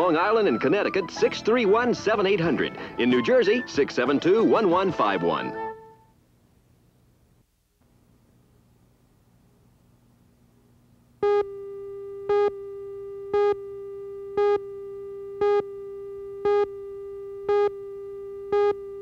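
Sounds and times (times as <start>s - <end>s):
faint hum: 5.6s - 19.0s
buzzy countdown beeps: 13.3s - 13.7s, 14.4s - 14.6s, 15.4s - 15.7s.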